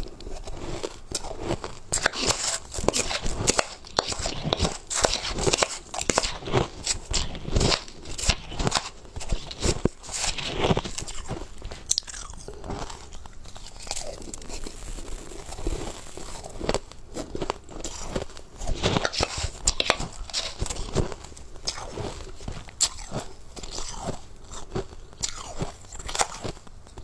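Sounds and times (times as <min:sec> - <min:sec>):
chewing crushed ice: 0:00.0 - 0:27.0.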